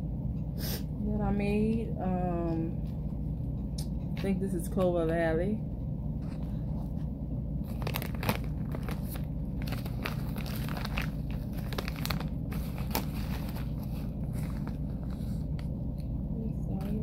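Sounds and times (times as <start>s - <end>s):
plastic bag crinkling: 7.6s - 16.1s.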